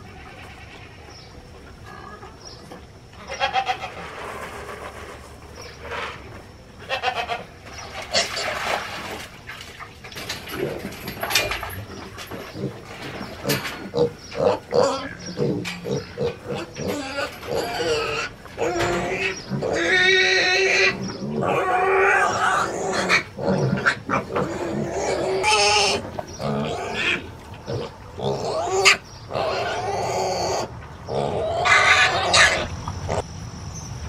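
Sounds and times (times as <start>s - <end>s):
pigs squealing: 3.2s - 5.0s, 6.8s - 8.6s, 12.3s - 33.2s
pigs grunting: 10.3s - 33.3s.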